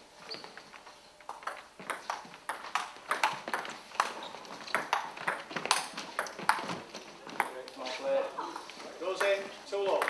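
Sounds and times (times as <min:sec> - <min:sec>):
table tennis ball knocks: 0:01.4 - 0:06.7.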